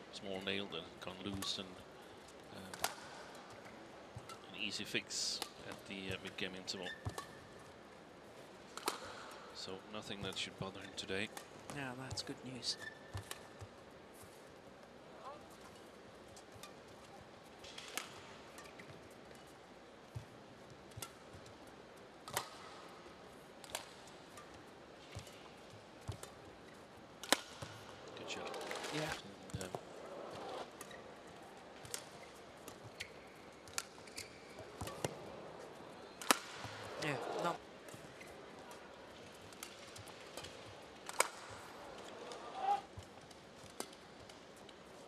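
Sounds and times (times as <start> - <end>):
faint arena hum: 0.0 - 45.0
shoe squeaking on court: 6.8 - 7.4, 12.7 - 13.6, 29.6 - 31.2, 32.1 - 35.2
racket striking shuttlecock: 27.2 - 27.8, 34.8 - 35.2, 36.2 - 37.0, 39.5 - 41.8.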